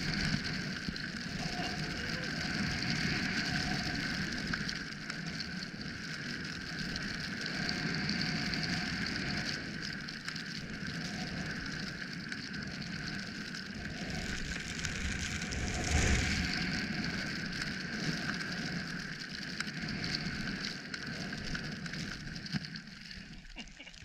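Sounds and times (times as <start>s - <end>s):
wind noise on microphone: 12.7s - 18.9s
skis hissing through snow: 13.7s - 18.8s.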